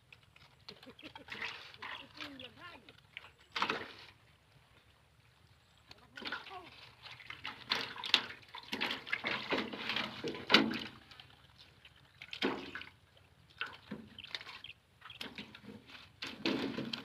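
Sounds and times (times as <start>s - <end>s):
water splashing and sloshing: 0.0s - 17.0s.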